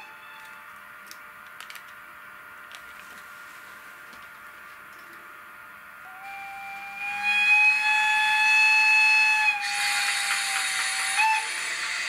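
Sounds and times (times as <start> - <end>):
locomotive whistle blast: 6.0 - 12.0
loud hiss: 6.3 - 12.0.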